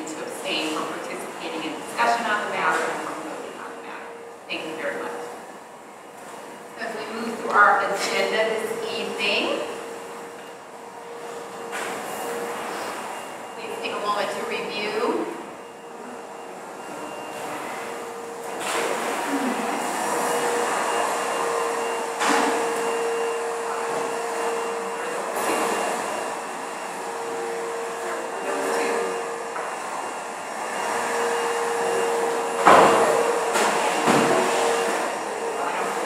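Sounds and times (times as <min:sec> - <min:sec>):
mid-pitched hum: 0:00.0 - 0:36.0.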